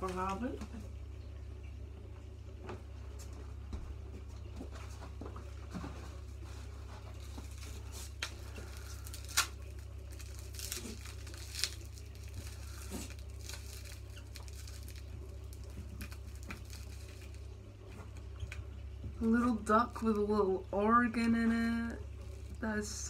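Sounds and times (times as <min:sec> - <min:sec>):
steady low hum: 0:00.0 - 0:23.0
packaging rustling and tearing: 0:06.8 - 0:18.3.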